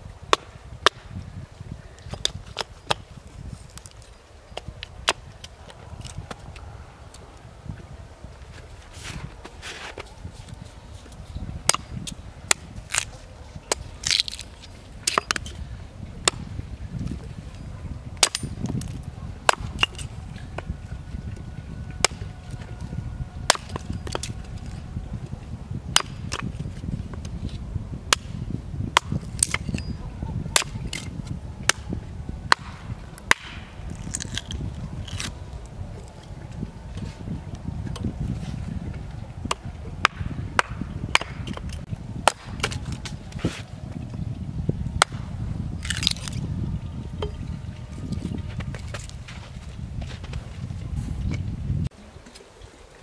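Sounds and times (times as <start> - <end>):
hatchet splitting wood: 11.7 - 13.1, 18.2 - 20.7, 23.5 - 24.3, 25.9 - 26.7, 28.1 - 28.3, 29.0 - 29.9, 30.6 - 31.9, 32.5 - 35.3, 39.4 - 43.2.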